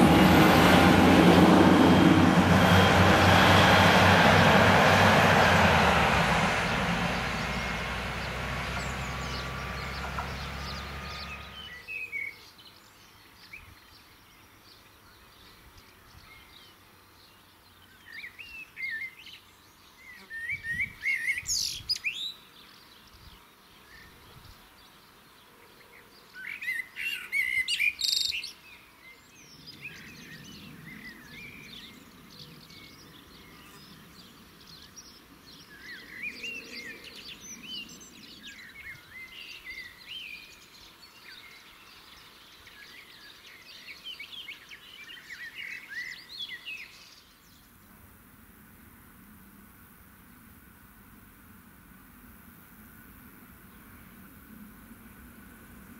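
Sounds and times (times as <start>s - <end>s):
small birds chirping: 7.1s - 47.8s.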